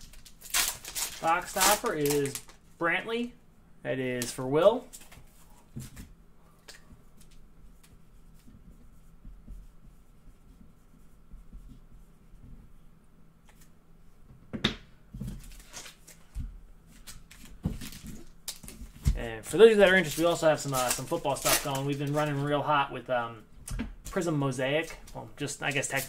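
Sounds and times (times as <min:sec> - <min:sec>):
cards rustling: 0:00.0 - 0:02.6, 0:15.3 - 0:22.6, 0:24.2 - 0:26.0.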